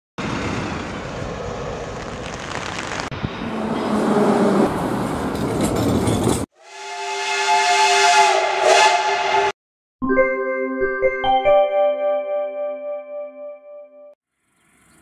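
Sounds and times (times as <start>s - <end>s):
metro train rushing rumble: 0.2s - 9.6s
steam locomotive whistle: 6.6s - 9.6s.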